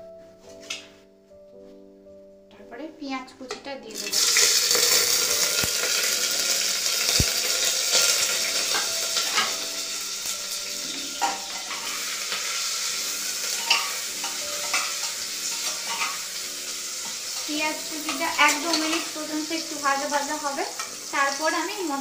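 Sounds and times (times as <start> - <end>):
onion sizzling in oil: 3.9 - 22.0
metal spoon scraping pot: 10.7 - 12.1, 13.6 - 16.3.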